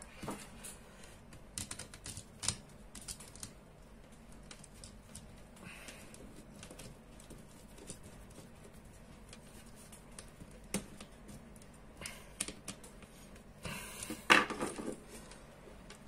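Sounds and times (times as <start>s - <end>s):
hands handling wire: 0.0s - 16.0s
rustling and knocking: 14.1s - 16.0s.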